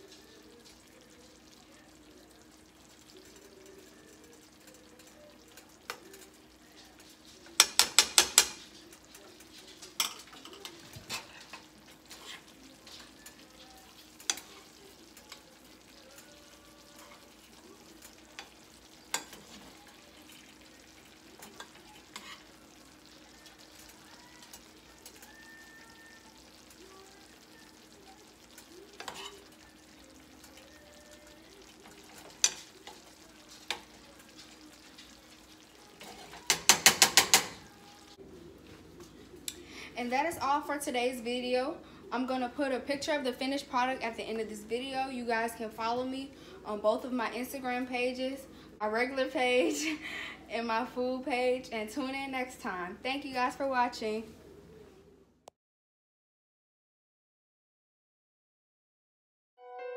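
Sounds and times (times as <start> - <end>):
sauce simmering with faint sizzle: 0.0 - 55.2
metal utensils scraping a pan: 7.2 - 15.4, 20.4 - 22.6, 28.9 - 29.6, 31.6 - 37.7.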